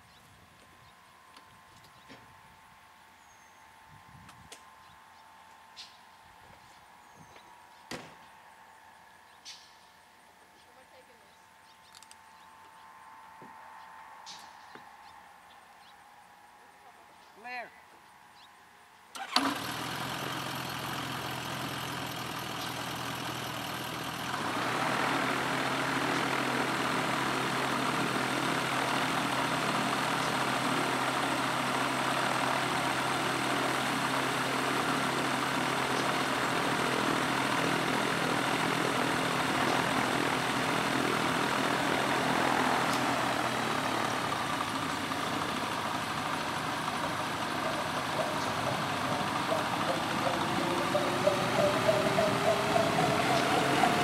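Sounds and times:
gyroplane engine and propeller: 19.2s - 54.0s.

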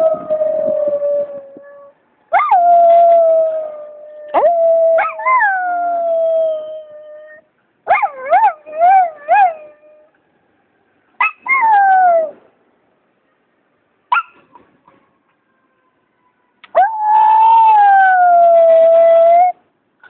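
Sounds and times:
dog yipping: 11.2s - 11.8s, 14.1s - 14.6s.

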